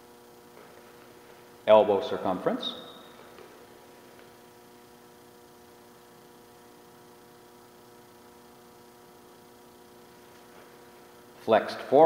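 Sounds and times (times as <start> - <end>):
faint electrical hum: 0.0 - 12.0.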